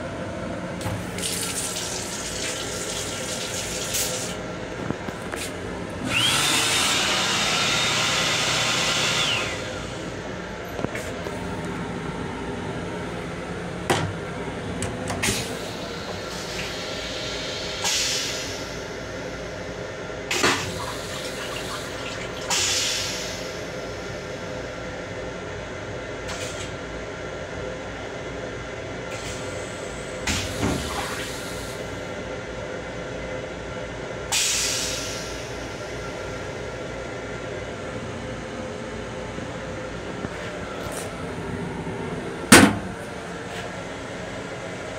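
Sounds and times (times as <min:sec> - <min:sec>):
toilet flushing water spurts: 0:00.8 - 0:04.5, 0:20.3 - 0:24.0, 0:30.2 - 0:31.8.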